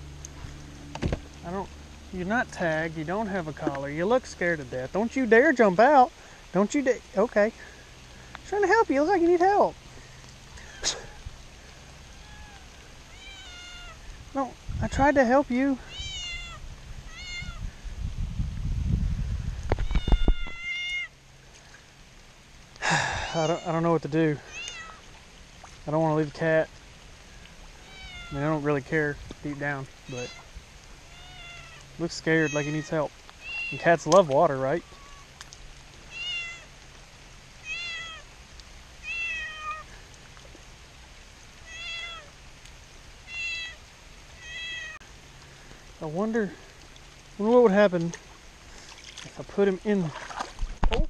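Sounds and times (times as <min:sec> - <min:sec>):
low rumbling: 0:00.0 - 0:47.4
cat meowing: 0:12.1 - 0:14.0, 0:15.8 - 0:17.6, 0:19.8 - 0:21.1, 0:24.5 - 0:25.0, 0:27.8 - 0:28.5, 0:30.1 - 0:30.5, 0:31.1 - 0:33.9, 0:34.8 - 0:35.3, 0:36.1 - 0:36.7, 0:37.6 - 0:38.3, 0:39.0 - 0:39.9, 0:41.6 - 0:42.3, 0:43.2 - 0:43.8, 0:44.4 - 0:45.0.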